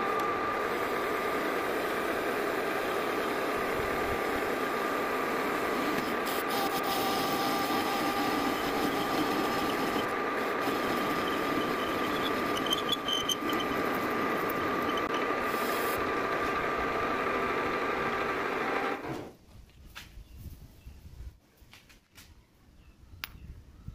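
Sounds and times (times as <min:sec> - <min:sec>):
metal lathe cutting with whine: 0:00.0 - 0:19.0
squeaks from the cut: 0:10.7 - 0:15.3.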